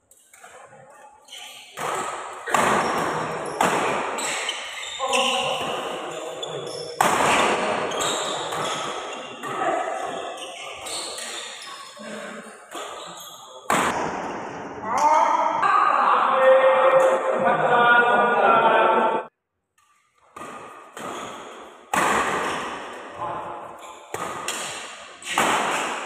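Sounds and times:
rackets hitting shuttlecock: 0.3s - 11.6s, 12.7s - 14.8s, 19.8s - 26.0s.

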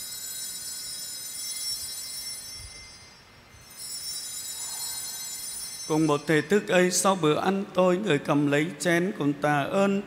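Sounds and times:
small bells ringing: 0.0s - 7.2s.

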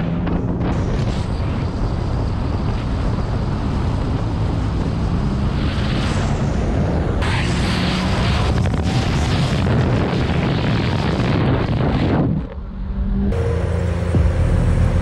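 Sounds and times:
wind noise: 0.0s - 13.5s
car engine at speed: 0.0s - 15.0s
car engine idling: 13.3s - 15.0s.

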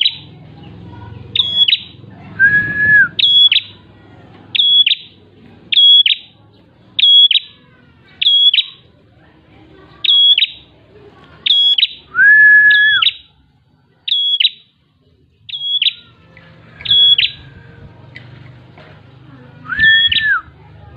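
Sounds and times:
bird whistling: 0.0s - 0.2s, 1.4s - 3.8s, 4.5s - 6.3s, 7.0s - 7.5s, 8.2s - 8.8s, 10.0s - 10.7s, 11.4s - 13.3s, 14.1s - 14.7s, 15.5s - 16.1s, 16.8s - 17.4s, 19.6s - 20.5s.

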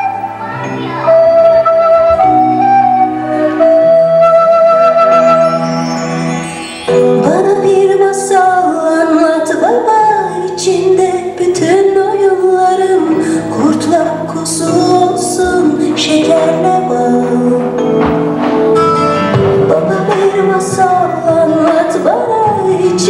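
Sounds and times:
instrumental backing: 0.0s - 23.0s
woman singing: 7.0s - 18.1s, 19.6s - 23.0s.

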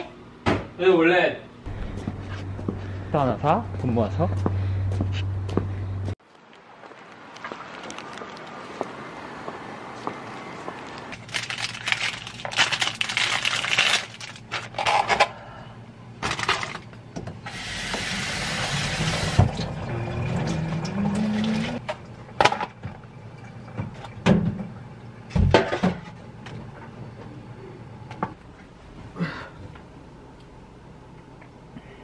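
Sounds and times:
rustling and crinkling: 6.2s - 8.9s, 10.7s - 15.2s.

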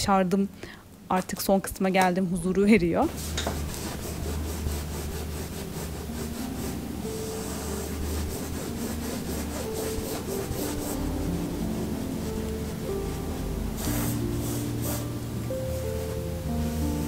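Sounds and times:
paintbrush scrubbing on canvas: 3.1s - 15.2s.

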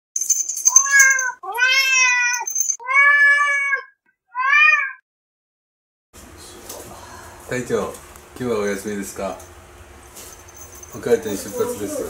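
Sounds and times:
cat meowing: 0.7s - 5.0s.

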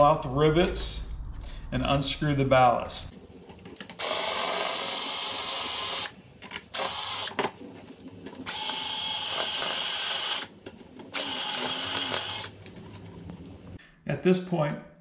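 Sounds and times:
electric drill whining: 4.0s - 7.4s, 8.4s - 10.5s, 11.1s - 12.6s.

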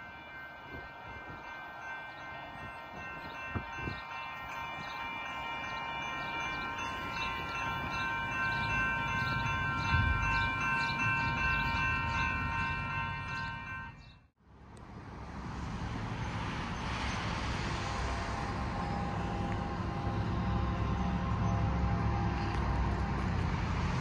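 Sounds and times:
railroad crossing bell ringing: 0.0s - 14.3s, 18.3s - 23.2s.

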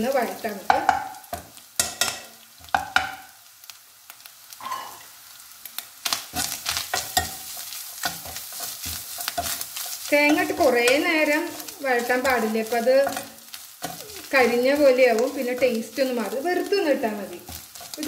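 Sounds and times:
frying sizzle: 0.0s - 18.0s
metal spoon scraping a pan: 4.6s - 5.2s, 6.3s - 16.6s, 17.4s - 18.0s.

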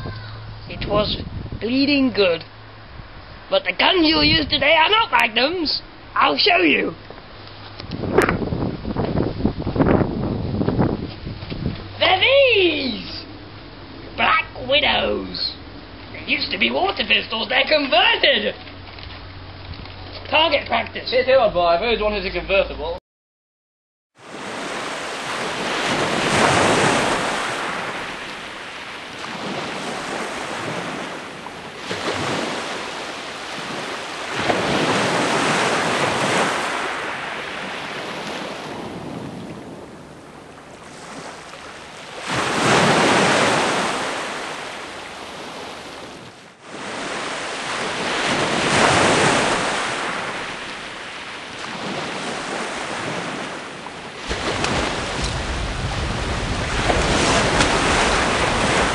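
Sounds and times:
ocean waves breaking: 0.0s - 22.8s, 24.2s - 58.9s.

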